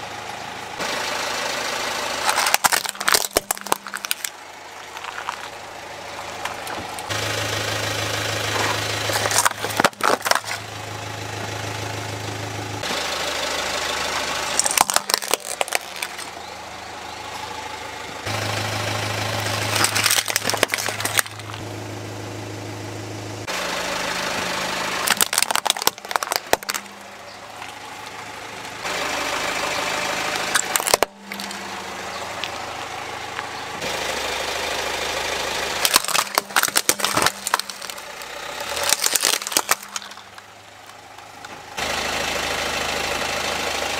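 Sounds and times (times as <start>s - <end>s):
car engine running: 0.0s - 43.9s
plastic toys cracking under tyre: 2.2s - 5.6s, 8.5s - 10.7s, 14.5s - 16.4s, 19.4s - 21.6s, 25.0s - 27.8s, 30.5s - 31.6s, 35.8s - 41.6s.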